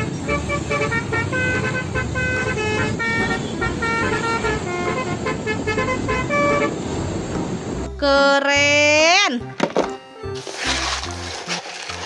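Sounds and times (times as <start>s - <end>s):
horn-like synthesized melody: 0.0s - 7.2s
steady rushing noise: 2.7s - 7.9s.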